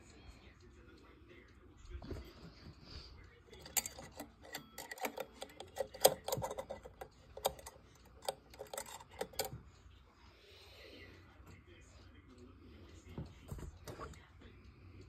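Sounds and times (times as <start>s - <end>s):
clock pendulum clicks and knocks: 3.6s - 9.7s.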